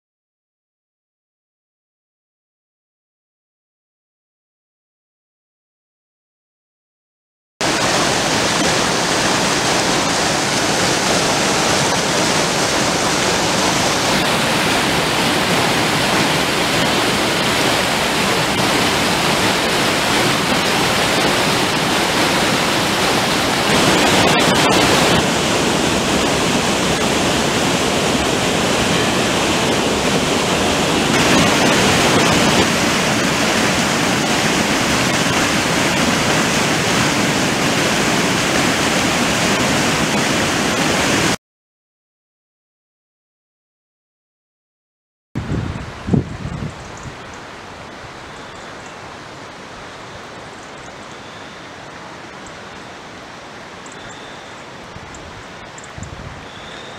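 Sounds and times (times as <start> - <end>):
water rushing over rocks: 7.6 - 41.4, 45.4 - 56.9.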